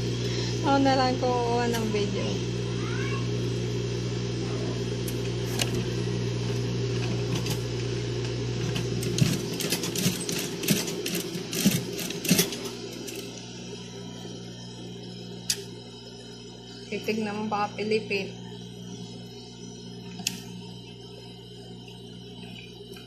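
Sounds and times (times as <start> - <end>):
sewing machine motor hum: 0.0 - 23.0.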